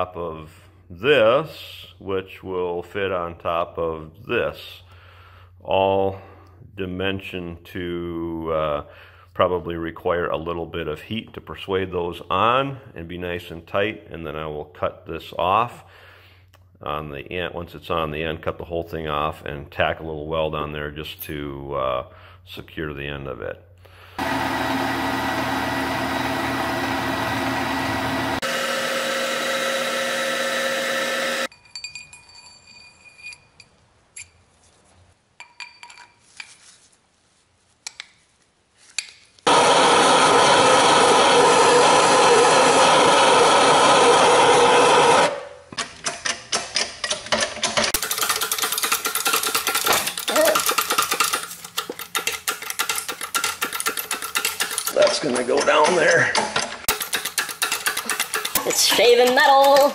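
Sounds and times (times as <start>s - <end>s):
milling machine whine: 24.2s - 31.5s, 39.5s - 45.3s.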